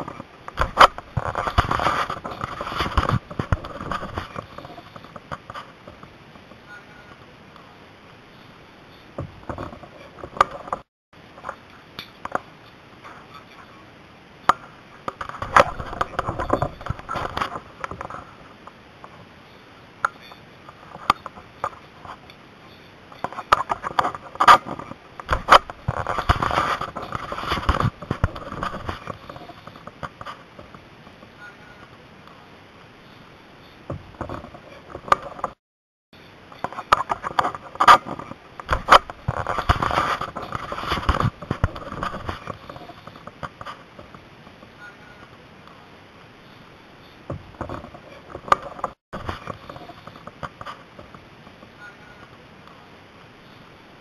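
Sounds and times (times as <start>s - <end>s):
gear rustling and scraping: 0.0s - 6.1s, 15.1s - 19.2s, 20.2s - 31.2s, 36.2s - 44.6s, 47.0s - 51.6s.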